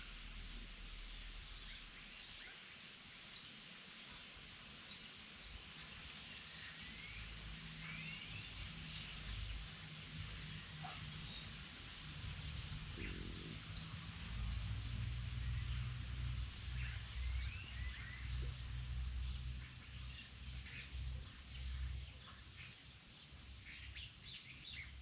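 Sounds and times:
steady high hiss: 0.0s - 25.0s
birds singing: 12.4s - 25.0s.

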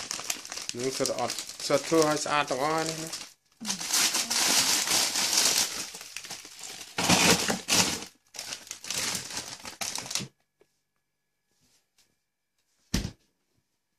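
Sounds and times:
plastic bags crinkling: 0.0s - 10.3s.

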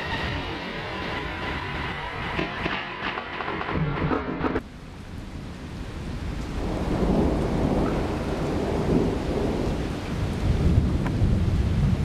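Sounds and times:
thunder rumbling: 0.0s - 12.0s
steady rain: 4.6s - 12.0s.

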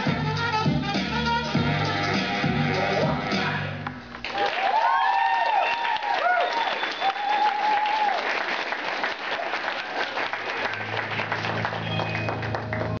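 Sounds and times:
audience applauding: 4.2s - 13.0s
high whoop: 4.4s - 8.3s.

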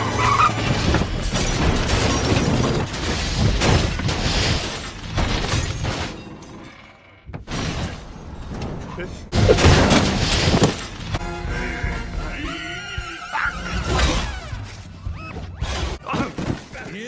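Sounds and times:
car crash metal crunching: 0.2s - 6.2s, 7.4s - 11.2s.

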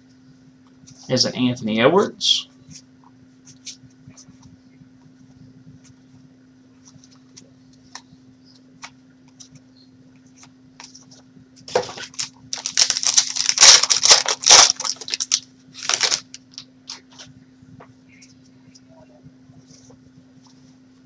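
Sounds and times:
foil wrapper ripping and crinkling: 11.7s - 17.1s.

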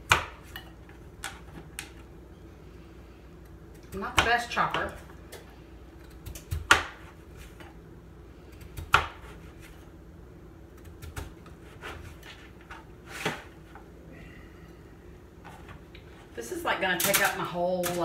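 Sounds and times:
knife chopping on cutting board: 8.8s - 9.8s.

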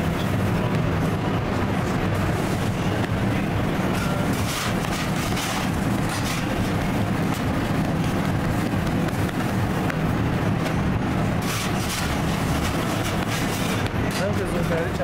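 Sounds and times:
machinery humming: 0.0s - 15.0s.

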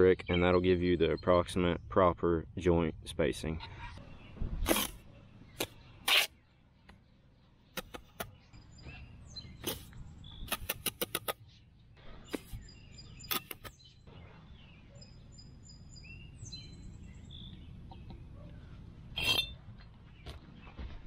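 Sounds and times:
birds chirping: 0.0s - 21.0s
trowel scraping in mortar: 4.6s - 5.0s, 5.6s - 6.4s, 9.6s - 9.9s, 13.2s - 13.8s, 19.2s - 19.6s.

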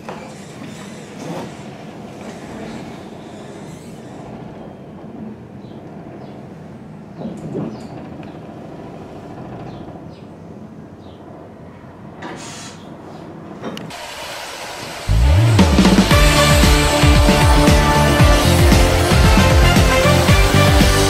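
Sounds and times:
funicular car rumbling on rails: 15.1s - 21.0s.

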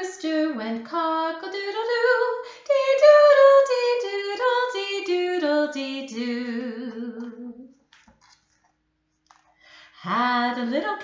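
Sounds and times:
woman singing unaccompanied: 0.0s - 7.8s, 10.0s - 11.0s.

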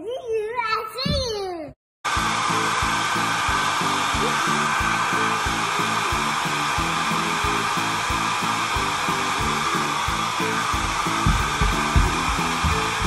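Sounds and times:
background music with steady beat: 2.1s - 13.0s
hair dryer blowing: 2.1s - 13.0s.

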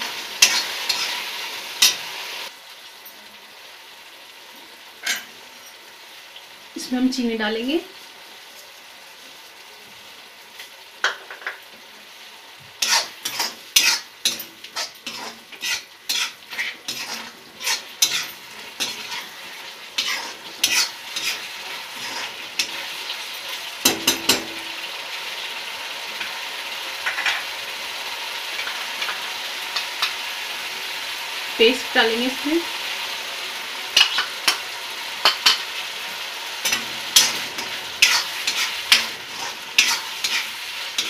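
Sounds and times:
spatula scraping a wok: 0.0s - 2.5s, 12.8s - 24.6s, 33.6s - 41.0s
sauce sizzling: 0.0s - 41.0s.

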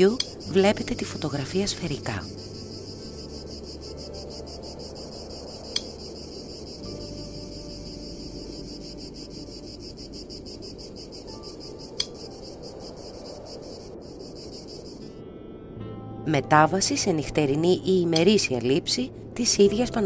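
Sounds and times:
insects chirring: 0.0s - 15.2s.

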